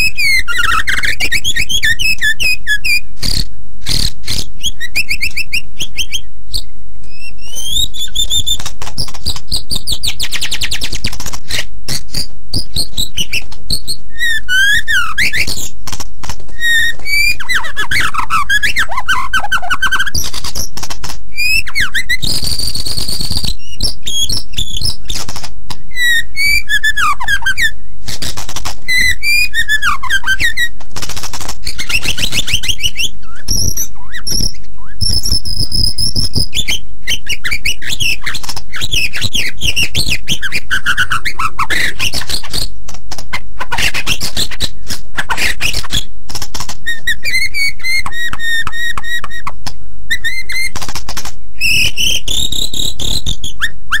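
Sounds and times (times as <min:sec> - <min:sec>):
songbird singing whistles and trills: 0:00.0 - 0:15.8, 0:16.5 - 0:25.2, 0:25.9 - 0:27.8, 0:28.8 - 0:30.8, 0:31.6 - 0:42.7, 0:46.8 - 0:50.8, 0:51.6 - 0:54.0.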